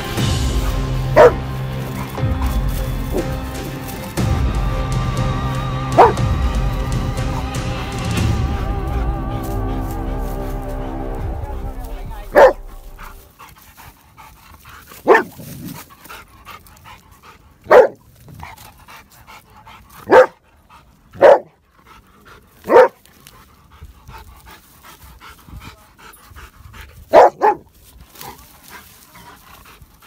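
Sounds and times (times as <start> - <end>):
dog barking: 1.1 - 1.5, 6.0 - 6.2, 12.3 - 13.1, 15.0 - 15.4, 17.6 - 18.0, 20.0 - 20.4, 21.2 - 21.6, 22.6 - 23.0, 27.1 - 27.6.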